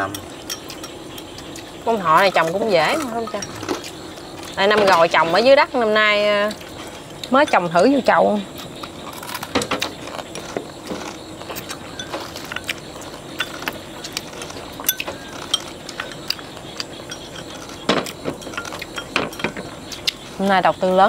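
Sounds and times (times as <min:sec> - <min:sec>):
chopsticks clinking on ceramic bowls: 0:00.0 - 0:01.4, 0:02.1 - 0:04.0, 0:17.0 - 0:17.8.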